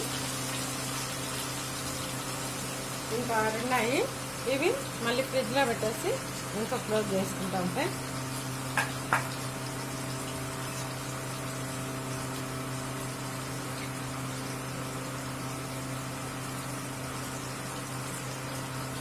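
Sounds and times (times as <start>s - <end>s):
fish deep-frying in oil: 0.0s - 19.0s.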